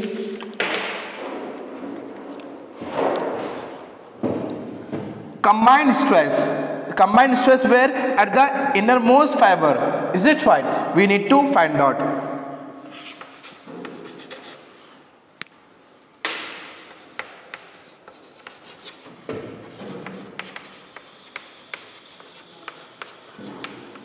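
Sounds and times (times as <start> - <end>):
chalk scratching on blackboard: 12.9 - 15.0, 16.3 - 24.0
chalk tapping on board: 16.2 - 24.0.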